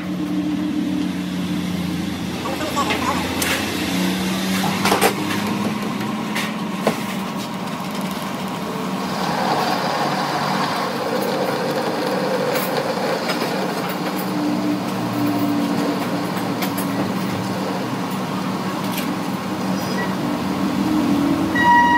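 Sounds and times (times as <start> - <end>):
lathe humming: 8.4 - 16.5.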